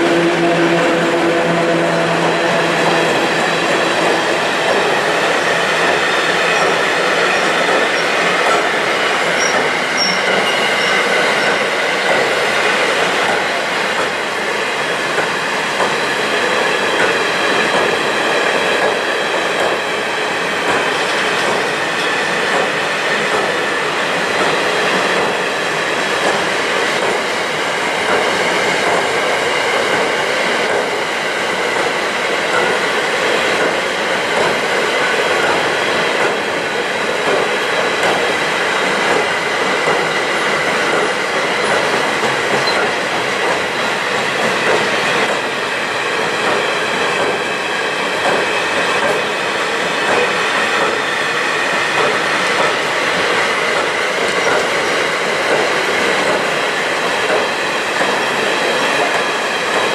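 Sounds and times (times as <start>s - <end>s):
wheels squealing on rails: 0.0s - 13.4s, 38.9s - 46.6s
freight train rolling past: 0.0s - 59.9s.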